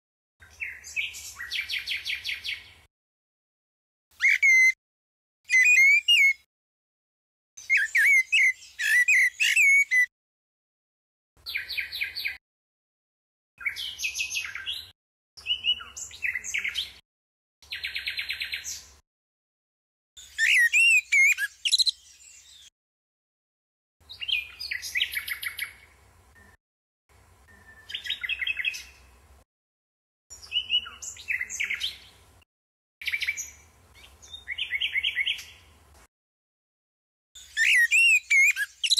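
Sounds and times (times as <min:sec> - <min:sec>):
blackbird fluting whistles: 0:04.2 - 0:04.8, 0:05.5 - 0:06.4, 0:07.6 - 0:10.1, 0:20.4 - 0:21.9, 0:37.6 - 0:38.9
nightingale trills: 0:04.2 - 0:04.8, 0:05.5 - 0:06.4, 0:07.6 - 0:10.1, 0:20.2 - 0:22.7, 0:27.5 - 0:29.0, 0:37.4 - 0:38.9.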